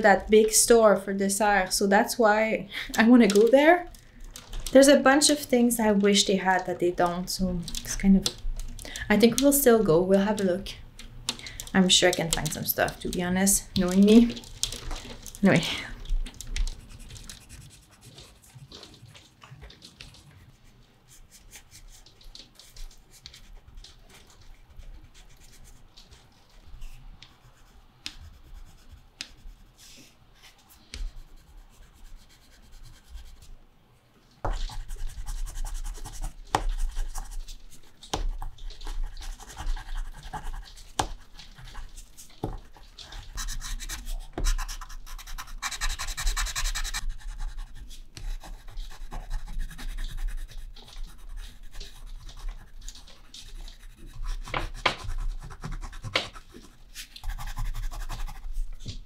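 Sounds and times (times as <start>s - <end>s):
pastel scratching on paper: 16.6s - 19.1s, 26.8s - 33.6s, 34.5s - 59.0s.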